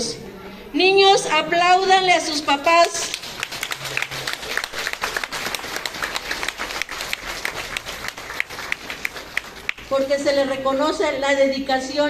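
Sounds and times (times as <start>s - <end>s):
audience applauding: 3.0s - 9.9s.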